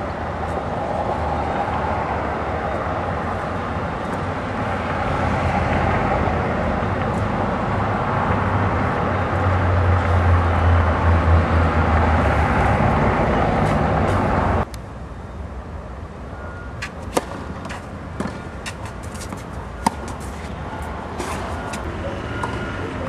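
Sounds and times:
tennis racquet hitting ball: 0:17.1 - 0:21.8.

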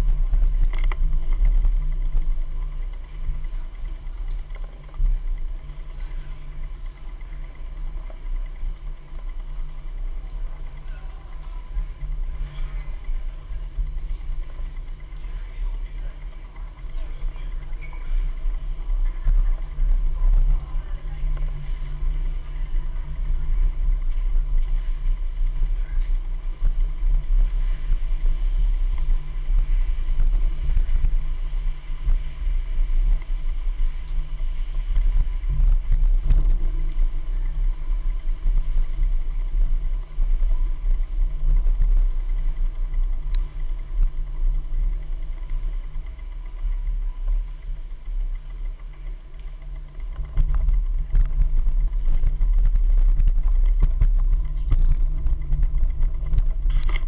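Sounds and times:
camera rolling over floor rumble: 0:00.0 - 0:57.0.

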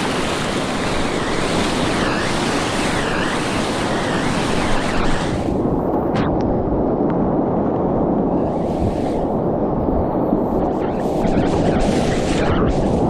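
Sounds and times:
whitewater rushing and splashing: 0:00.0 - 0:05.8.

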